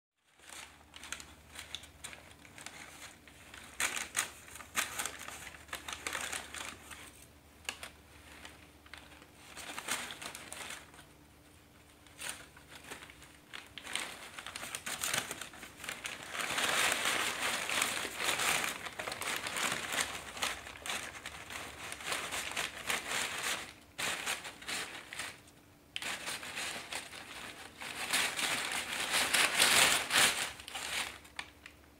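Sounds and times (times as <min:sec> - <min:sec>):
paper rustling in cardboard box: 0:00.4 - 0:11.1, 0:12.0 - 0:25.4, 0:26.0 - 0:31.5.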